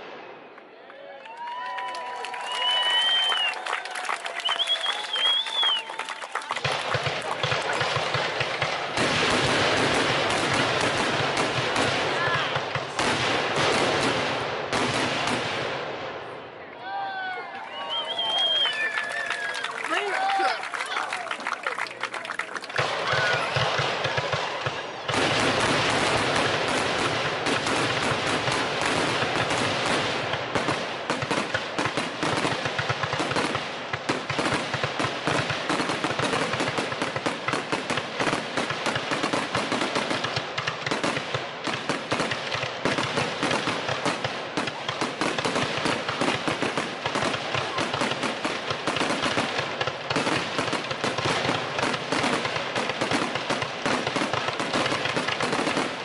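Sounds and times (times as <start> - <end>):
fireworks bangs and crackles: 0.0 - 0.7, 1.6 - 17.2, 17.9 - 56.0.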